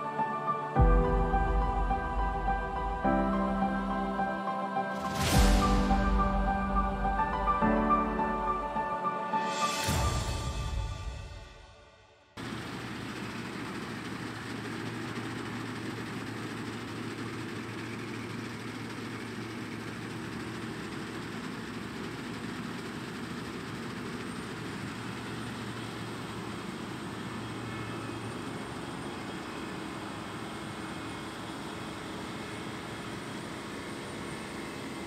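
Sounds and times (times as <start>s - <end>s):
combine harvester engine hum: 0.0s - 10.9s, 12.4s - 35.0s
machinery noise: 0.0s - 35.0s.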